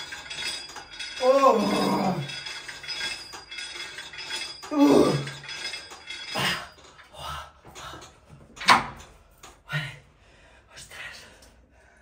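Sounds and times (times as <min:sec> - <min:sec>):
weight stack clinking: 0:00.0 - 0:09.6
person groaning: 0:04.7 - 0:05.3.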